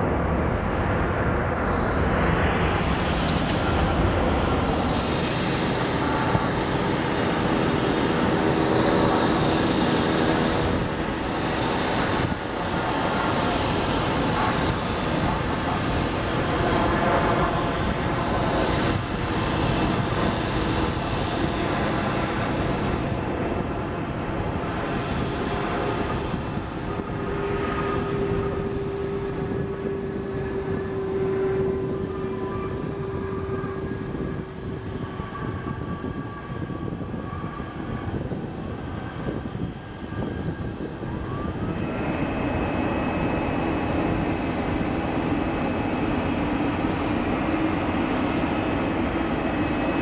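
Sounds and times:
engine whining tone: 0:00.0 - 0:11.3, 0:26.0 - 0:50.0
jet engines rushing: 0:00.0 - 0:50.0.

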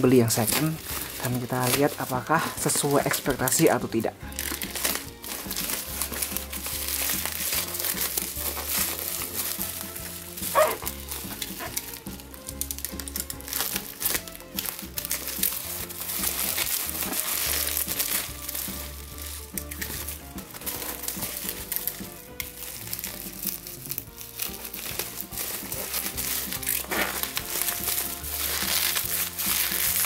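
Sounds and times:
background music with bass: 0:00.0 - 0:30.0
bubble-wrap mailer crinkling: 0:00.0 - 0:30.0.

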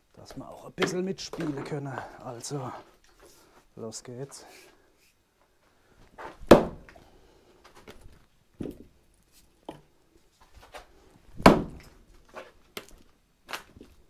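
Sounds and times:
axe chopping into log: 0:06.4 - 0:06.9, 0:11.4 - 0:11.9.

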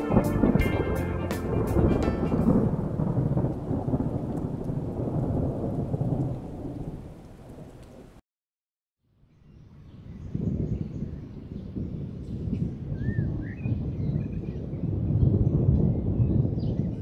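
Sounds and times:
rain: 0:00.0 - 0:08.2, 0:11.0 - 0:17.0
rumbling thunder: 0:00.0 - 0:08.2, 0:10.3 - 0:17.0.

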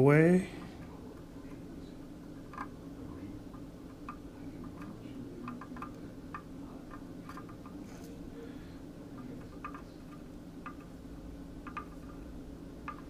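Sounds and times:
steady low hum: 0:00.0 - 0:13.0
soldering iron tip tapping: 0:11.6 - 0:12.2.

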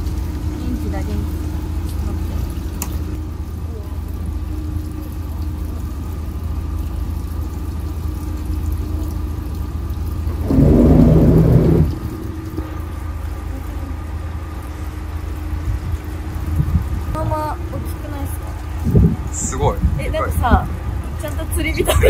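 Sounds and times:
boat engine idling: 0:00.0 - 0:22.0
wind on microphone: 0:10.2 - 0:13.0, 0:15.7 - 0:18.0, 0:18.7 - 0:21.2
rush of noise: 0:10.3 - 0:13.1.

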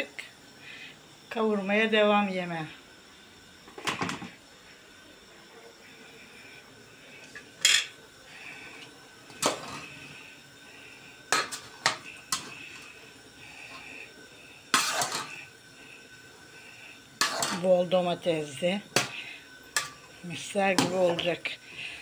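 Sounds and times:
spoon clanking against a pot: 0:17.2 - 0:17.7.

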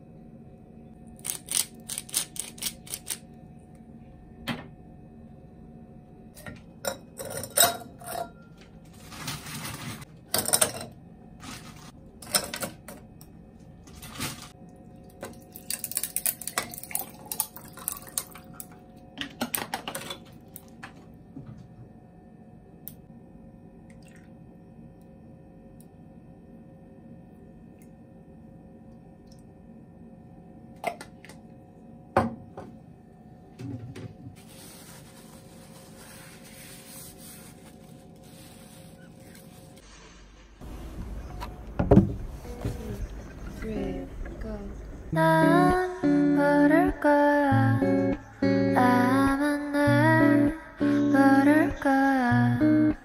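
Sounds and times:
dishes and utensils clattering: 0:06.4 - 0:08.6, 0:10.3 - 0:11.0, 0:12.2 - 0:13.0.

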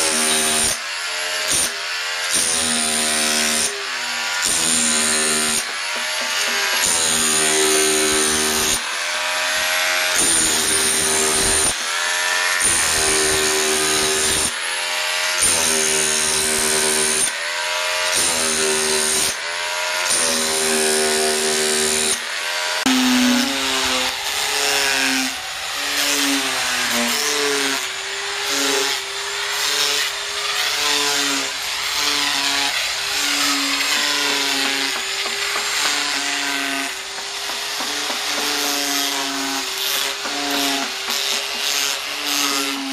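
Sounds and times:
electric drill boring into wood: 0:00.0 - 0:42.9
power tool cutting wood: 0:00.0 - 0:42.9.

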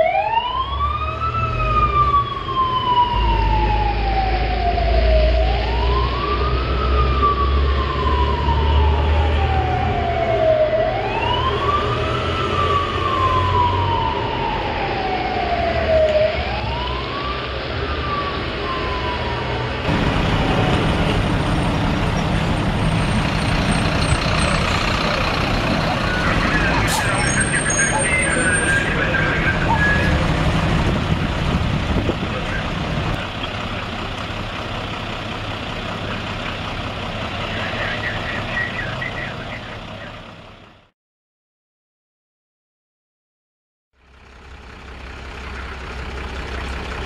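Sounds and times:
fire engine siren wailing: 0:00.0 - 0:40.9
low engine rumble: 0:19.9 - 0:40.9, 0:44.0 - 0:47.0.

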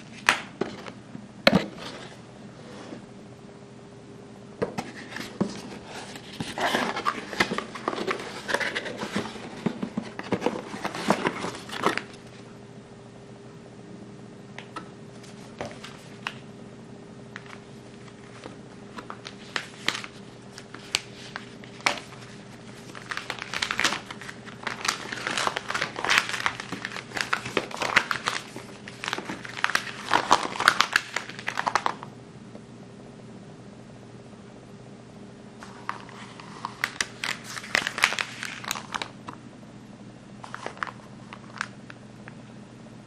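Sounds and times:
paper crinkling and rustling: 0:04.8 - 0:12.5, 0:15.1 - 0:16.4, 0:17.4 - 0:32.1, 0:35.6 - 0:39.4, 0:40.4 - 0:41.8.

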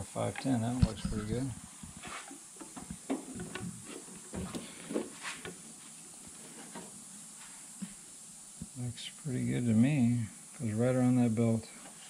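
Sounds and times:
faint hiss: 0:00.0 - 0:12.0
rubber hose scraping and creaking: 0:00.4 - 0:02.4.

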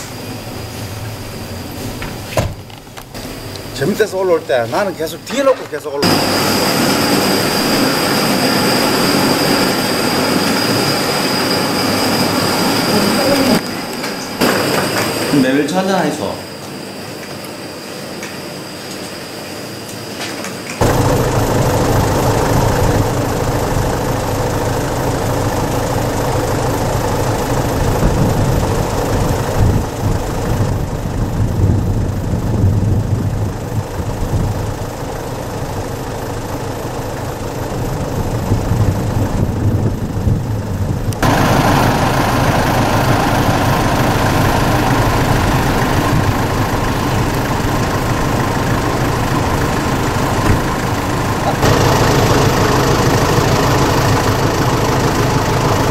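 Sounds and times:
vehicle engine idling: 0:20.8 - 0:55.9.

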